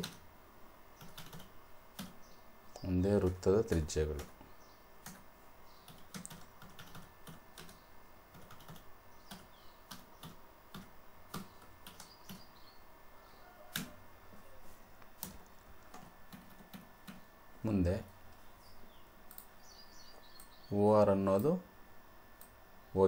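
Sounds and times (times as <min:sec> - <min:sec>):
typing on computer keyboard: 0:01.0 - 0:02.2, 0:05.0 - 0:05.2, 0:05.9 - 0:12.4, 0:13.7 - 0:13.9, 0:15.2 - 0:17.2.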